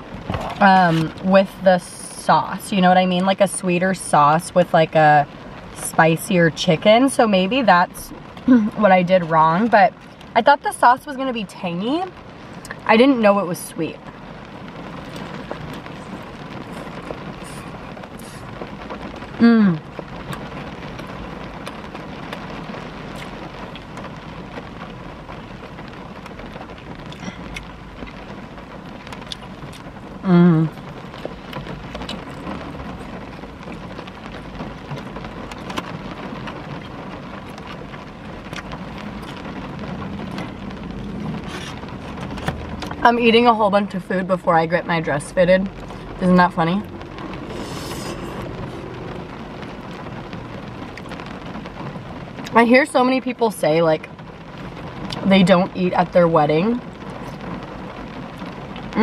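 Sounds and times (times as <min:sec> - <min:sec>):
rain on car roof: 0:00.0 - 0:59.0
person humming: 0:19.4 - 0:19.8, 0:30.2 - 0:30.7.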